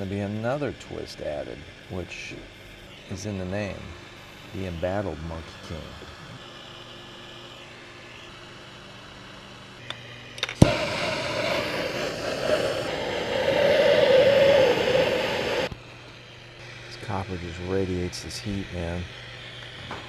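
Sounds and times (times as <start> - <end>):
faint steady hum: 0.0 - 20.0
gas torch igniter click: 9.8 - 15.7
gas torch rushing hiss: 10.4 - 15.7.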